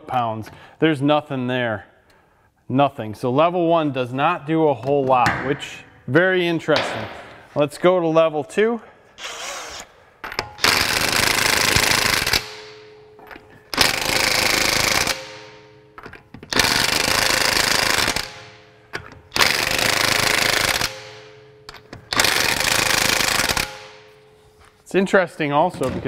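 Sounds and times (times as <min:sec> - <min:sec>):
impact wrench hammering: 0:10.2 - 0:24.2.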